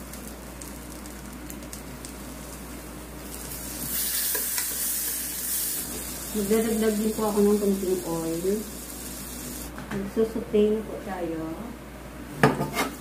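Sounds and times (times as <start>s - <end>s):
butter sizzling in a pan: 0.0s - 9.7s.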